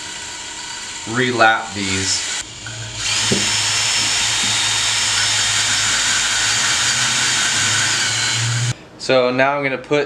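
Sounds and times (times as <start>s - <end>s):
cordless drill running: 0.1s - 1.4s, 2.0s - 8.8s.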